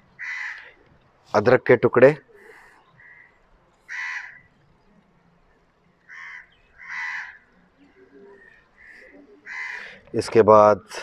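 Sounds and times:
crow cawing: 0.2s - 0.9s, 2.4s - 4.6s, 6.0s - 10.1s.

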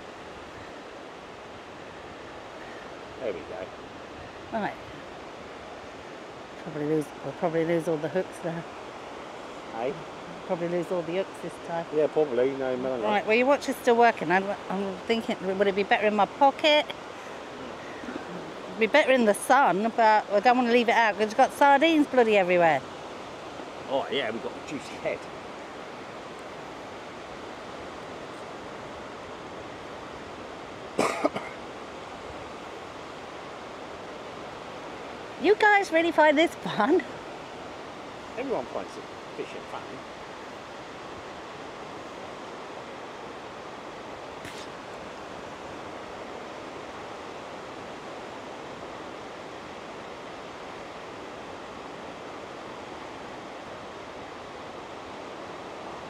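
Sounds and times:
surf washing on a beach: 0.0s - 56.0s
person coughing: 31.0s - 31.6s.

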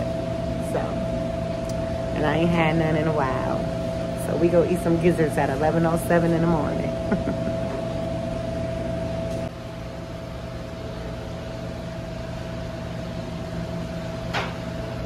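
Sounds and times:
steady mid-pitched tone: 0.0s - 9.5s
machine hum: 0.0s - 15.0s.

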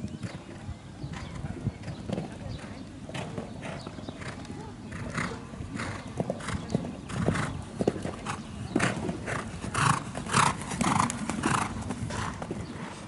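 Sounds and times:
hoofbeats on sand: 0.2s - 13.0s.

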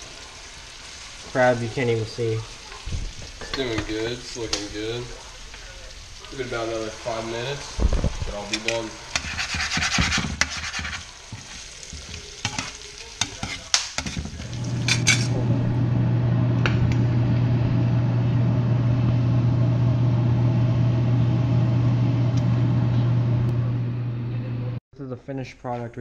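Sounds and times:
pot boiling: 0.0s - 23.5s
light sizzle: 0.0s - 24.3s
metal tongs scraping in frying pan: 8.3s - 15.4s
low hum: 14.4s - 24.8s.

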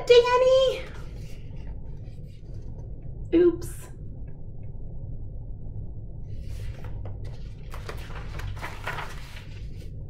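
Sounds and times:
book pages flipping: 0.8s - 2.9s, 6.3s - 10.0s.

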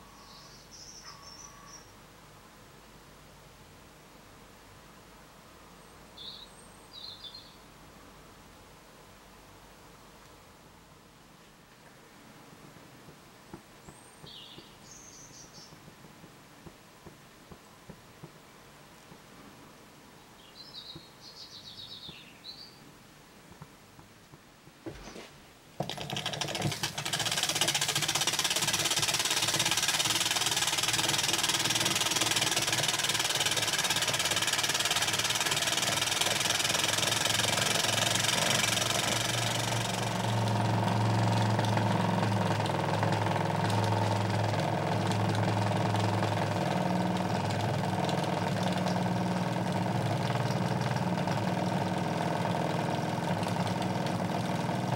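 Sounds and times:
steady running hum: 24.8s - 54.9s
fast cylinder chatter: 25.8s - 54.9s
toy steam engine hissing: 26.0s - 40.4s.

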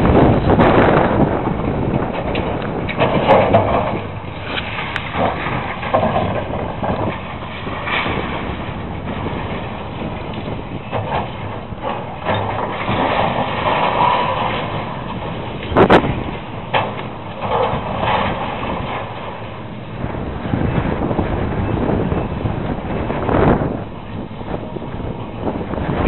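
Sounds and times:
debris breaking: 0.0s - 20.8s
diesel engine running: 0.0s - 26.0s.

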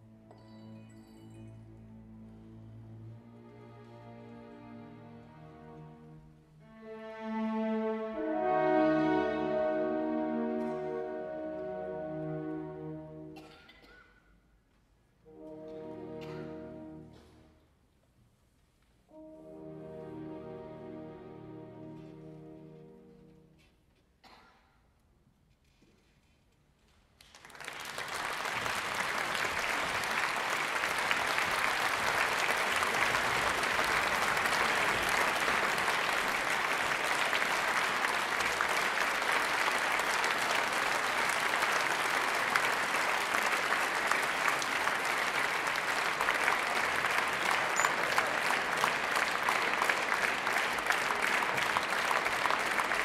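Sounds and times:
audience applauding: 27.2s - 53.0s.

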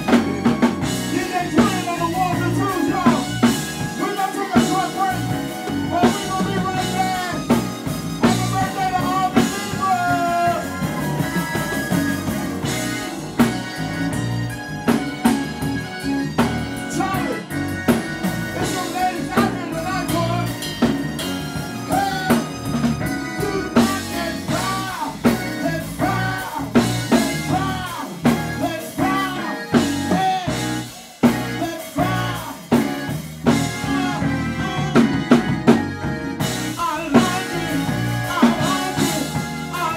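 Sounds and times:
hard-hit drum beat: 0.0s - 39.9s
live band playing: 0.0s - 39.9s
man singing into microphone: 1.0s - 12.7s, 16.8s - 17.8s, 18.4s - 21.0s, 21.6s - 35.6s, 36.7s - 39.9s.

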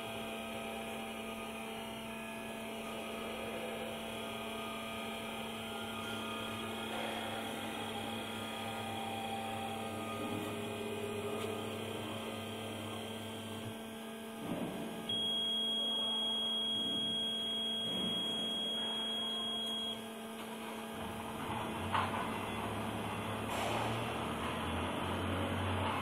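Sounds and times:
high steady whine: 0.0s - 20.2s
electrical hum of machine drives: 0.0s - 26.0s.

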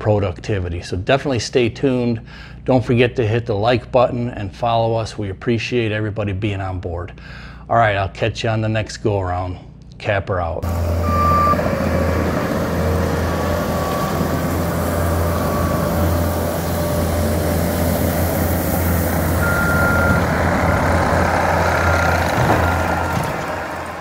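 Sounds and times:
diesel engine running: 10.6s - 24.0s
backup alarm beeps: 10.8s - 11.7s, 13.0s - 17.3s, 19.4s - 21.1s, 21.8s - 23.4s.

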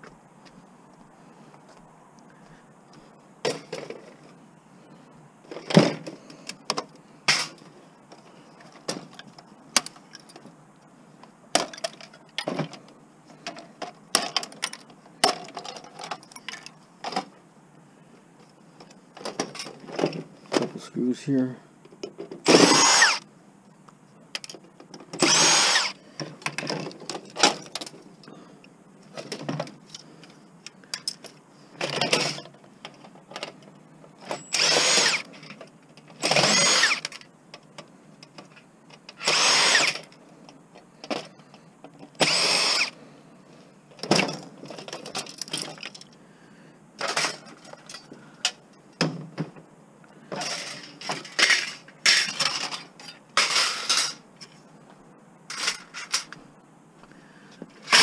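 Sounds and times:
cordless drill whirring: 22.4s - 23.2s, 25.2s - 26.0s, 34.4s - 35.3s, 36.2s - 37.1s, 39.2s - 40.0s, 42.2s - 43.0s.

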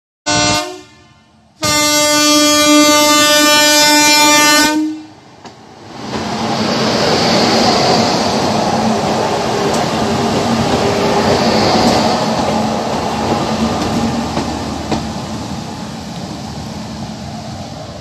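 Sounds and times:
electric locomotive horn: 0.2s - 5.2s
train rushing past: 1.4s - 18.0s.

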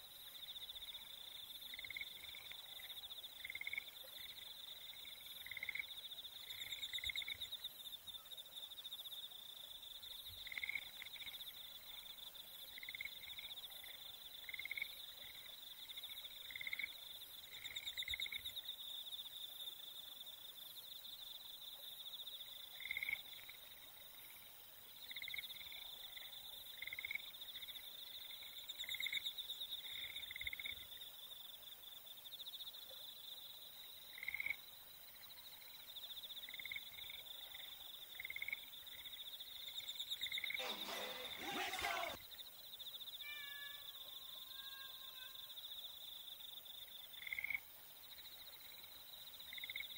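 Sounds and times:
insect trilling: 40.2s - 42.2s.

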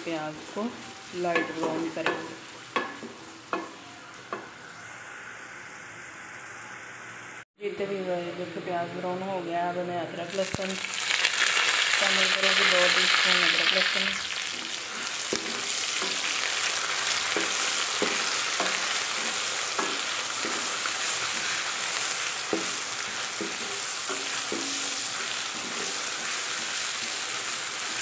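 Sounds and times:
food sizzling in hot oil: 0.0s - 7.4s, 10.3s - 28.0s
wooden spoon knocking a pan: 1.3s - 4.5s, 17.3s - 20.8s, 22.5s - 25.9s.

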